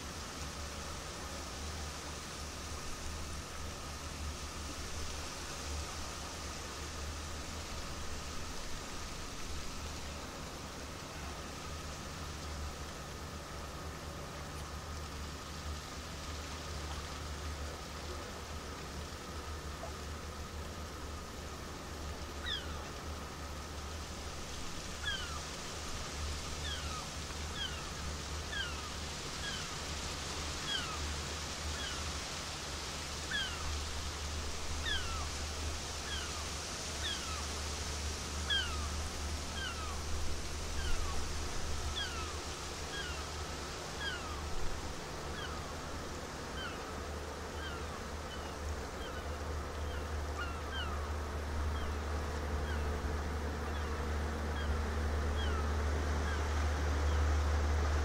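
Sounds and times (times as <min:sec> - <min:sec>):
ship engine low hum: 0:00.0 - 0:58.0
gulls calling: 0:22.4 - 0:22.9, 0:24.9 - 0:25.6, 0:26.5 - 0:29.8, 0:30.6 - 0:31.1, 0:31.7 - 0:32.1, 0:33.2 - 0:33.8, 0:34.6 - 0:35.4, 0:36.0 - 0:37.6, 0:38.2 - 0:57.3.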